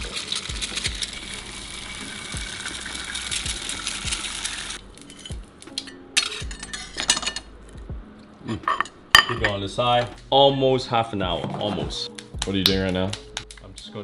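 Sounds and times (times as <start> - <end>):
eggs sizzling in a pan: 0.0 - 5.1
background music beat: 0.0 - 14.0
plate clinking: 5.0 - 7.5, 8.4 - 9.6.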